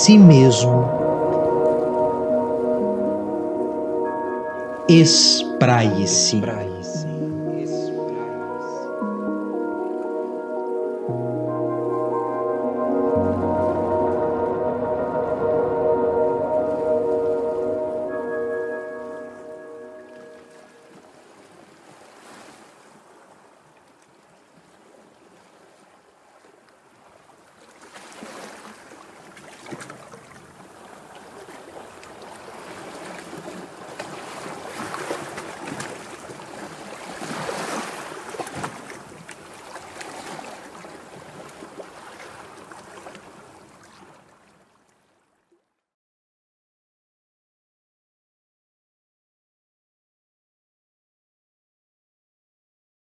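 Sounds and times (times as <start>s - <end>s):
sea waves washing on shore: 27.6s - 44.5s.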